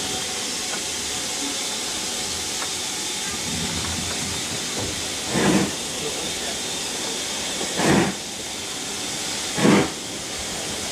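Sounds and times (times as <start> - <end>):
low train rumble: 0.0 - 10.9
steam train hiss: 0.0 - 10.9.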